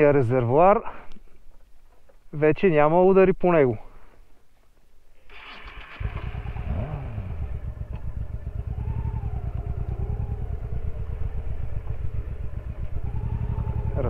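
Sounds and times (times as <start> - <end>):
motorcycle moving off: 5.3 - 14.0
motorcycle engine idling: 5.4 - 14.0.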